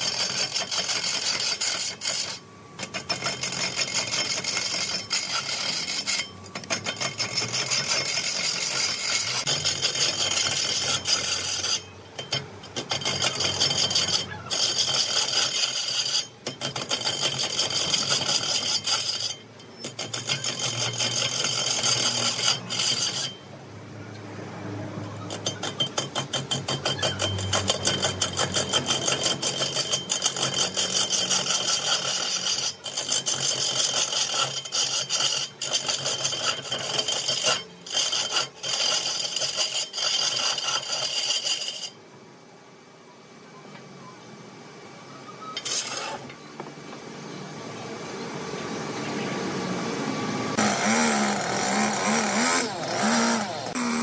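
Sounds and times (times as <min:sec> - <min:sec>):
lathe tool scraping wood: 0:00.0 - 0:23.4, 0:25.2 - 0:42.0, 0:45.6 - 0:46.3, 0:50.5 - 0:54.0.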